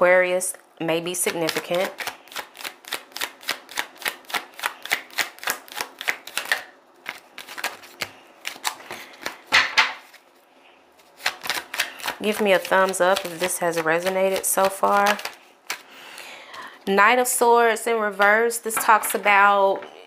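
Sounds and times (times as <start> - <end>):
cards being shuffled: 1.2 - 10.4, 11.0 - 16.8.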